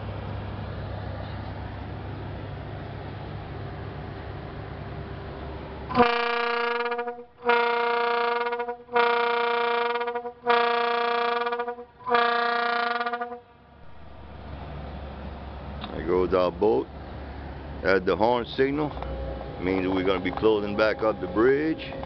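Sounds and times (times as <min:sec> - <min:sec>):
signal horn blasts: 0:05.9 - 0:13.6.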